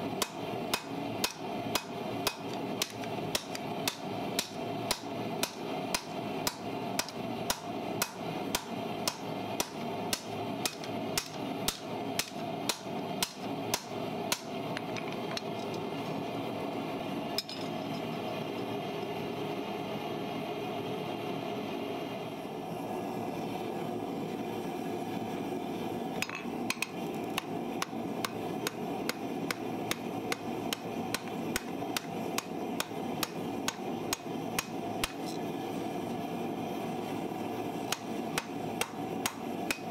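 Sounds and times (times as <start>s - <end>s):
steady background hum: 0.0s - 39.9s
hammer striking steel on anvil: 0.2s - 14.5s, 26.2s - 35.3s, 37.9s - 39.9s.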